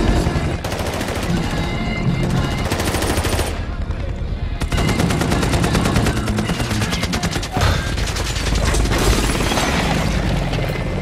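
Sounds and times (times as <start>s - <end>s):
machine-gun fire: 0.0s - 1.6s, 4.6s - 10.3s
film music: 0.0s - 11.0s.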